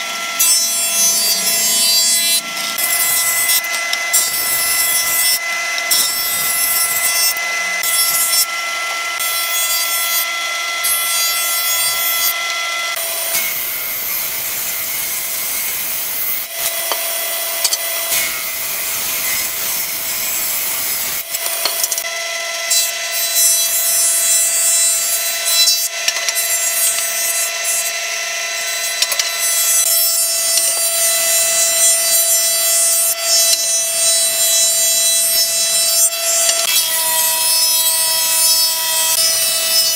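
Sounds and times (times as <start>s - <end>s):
jointer planer whining: 0.0s - 39.9s
hiss of wood cutting: 18.1s - 21.8s.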